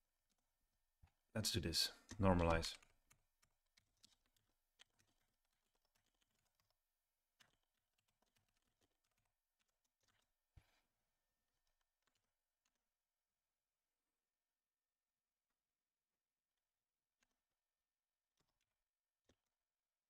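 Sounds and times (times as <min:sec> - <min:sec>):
keyboard key clicks: 0:02.0 - 0:03.2.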